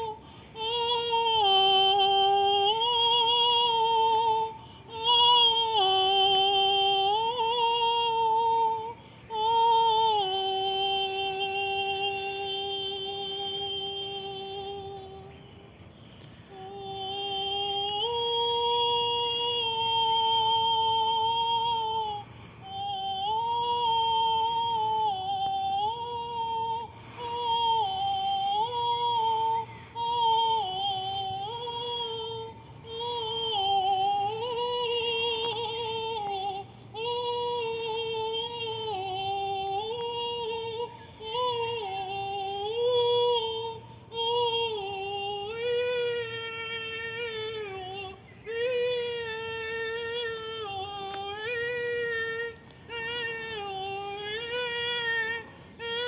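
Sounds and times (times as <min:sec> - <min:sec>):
woman singing without words: 0:00.0 - 0:56.0.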